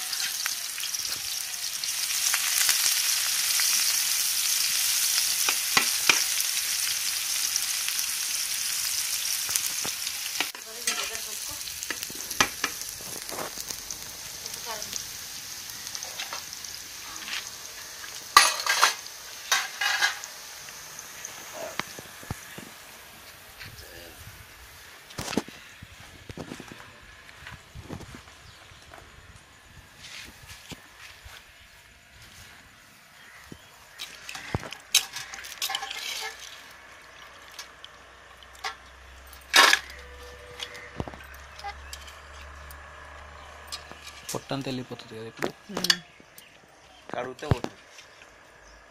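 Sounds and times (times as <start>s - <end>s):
metal utensils clanking: 10.4s - 12.8s, 18.2s - 20.4s, 34.0s - 37.8s, 38.5s - 42.6s
water splashing in a pot: 34.0s - 40.1s
steel bowls clinking: 34.3s - 36.6s.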